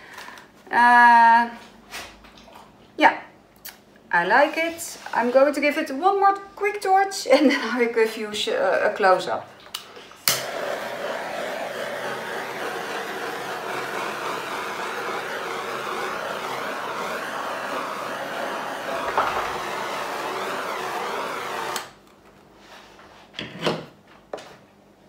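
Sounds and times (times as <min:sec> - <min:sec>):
torch flame hissing: 0:10.2 - 0:22.0.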